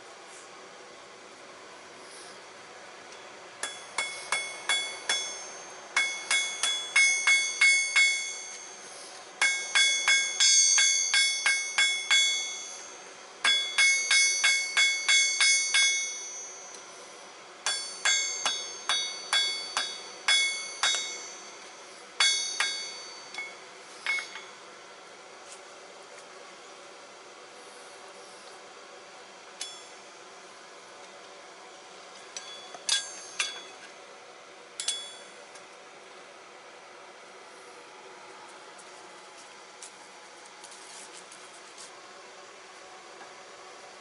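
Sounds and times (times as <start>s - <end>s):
hammer striking metal on anvil: 3.6s - 17.0s, 17.6s - 24.6s, 29.6s - 30.2s, 32.2s - 34.0s, 34.8s - 35.4s.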